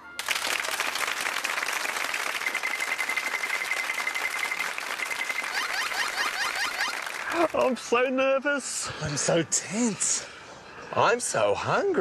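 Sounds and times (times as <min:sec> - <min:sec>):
audience clapping and cheering: 0:00.0 - 0:07.8
high steady tone: 0:02.4 - 0:07.1.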